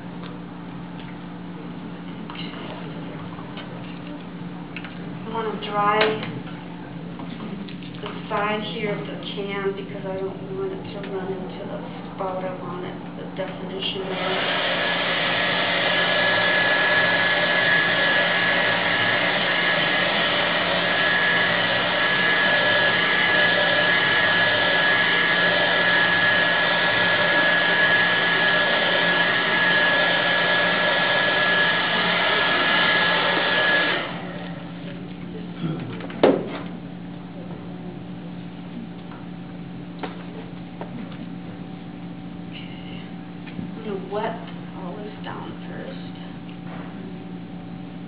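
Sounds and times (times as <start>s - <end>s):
hair dryer running: 9.6s - 35.0s.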